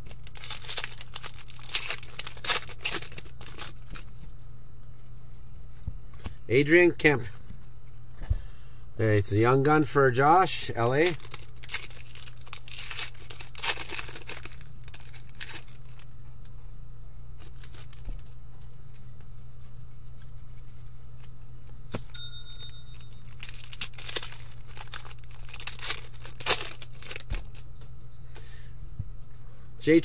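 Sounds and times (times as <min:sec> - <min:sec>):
foil wrappers tearing and crinkling: 0:00.0 - 0:04.1, 0:10.8 - 0:16.1, 0:17.4 - 0:18.3, 0:22.9 - 0:27.7
low steady hum: 0:00.0 - 0:30.0.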